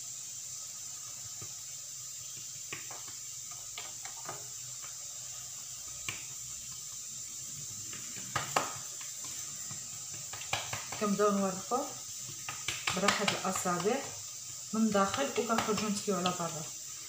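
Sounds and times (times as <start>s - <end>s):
steady high hiss: 0.0s - 17.0s
hand slapping dough: 2.3s - 5.0s, 5.9s - 6.8s, 7.8s - 16.7s.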